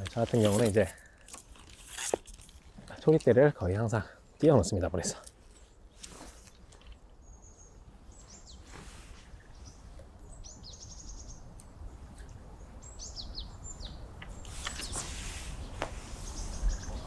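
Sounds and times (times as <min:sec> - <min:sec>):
small birds chirping: 0:02.6 - 0:17.0.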